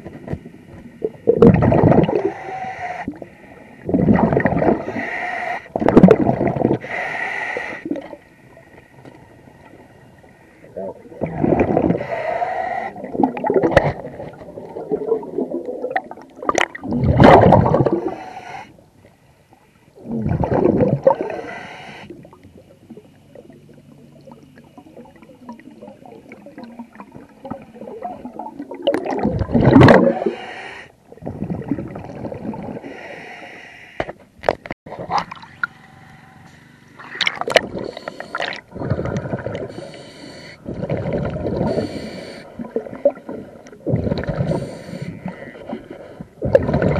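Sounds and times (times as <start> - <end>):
underwater hiss and rumble: 0.0 - 34.2, 34.9 - 46.9
diver's regulator bubbling bursts: 1.2 - 2.5, 3.9 - 5.1, 5.7 - 6.9, 10.8 - 12.3, 12.9 - 18.2, 20.0 - 21.5, 24.2 - 30.5, 37.0 - 39.9, 46.4 - 46.9.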